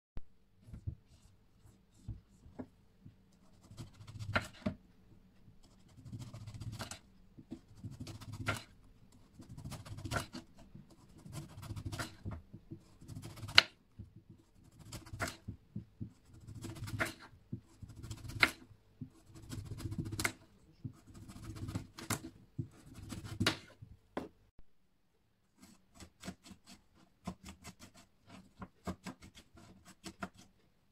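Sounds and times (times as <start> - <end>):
knife slicing on cutting board: 3.7 - 4.8, 16.5 - 17.3.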